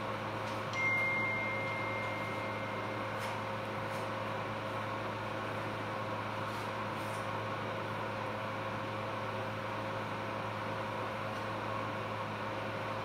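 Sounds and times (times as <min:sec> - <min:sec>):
electrical hum of equipment: 0:00.0 - 0:13.0
electronic beep tone: 0:00.8 - 0:03.3.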